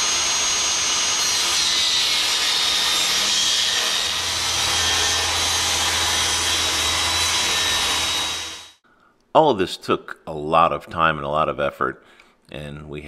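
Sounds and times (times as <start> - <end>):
table saw cutting plywood: 0.0 - 8.8.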